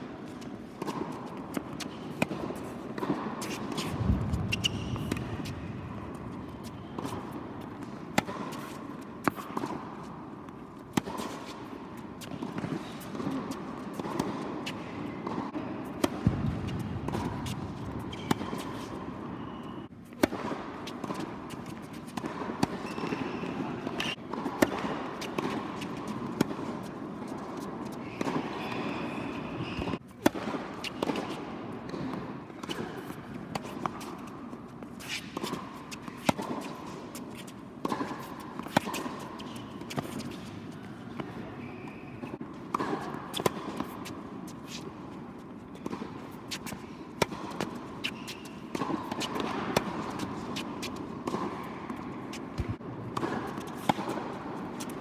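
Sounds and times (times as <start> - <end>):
indoor hall background noise: 0.0 - 55.0
tennis balls struck and bouncing: 0.2 - 55.0.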